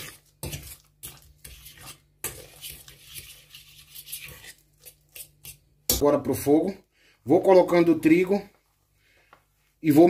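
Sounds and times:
utensil scraping metal pot: 0.0s - 6.1s.

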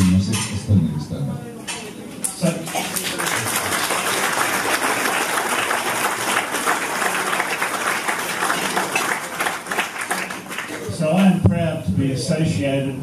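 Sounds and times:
audience applauding: 2.6s - 10.9s.

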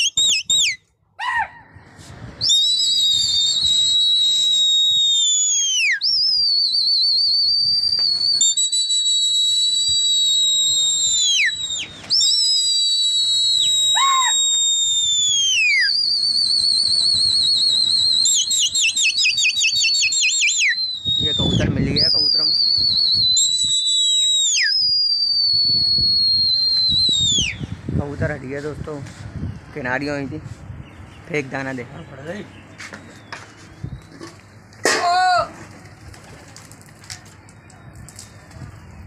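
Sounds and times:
person whistling shrilly: 0.0s - 1.4s, 2.4s - 27.7s.

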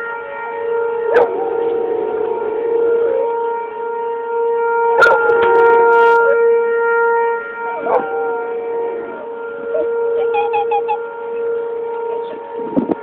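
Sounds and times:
siren steady note: 0.0s - 13.0s
dog howling: 1.1s - 2.2s.

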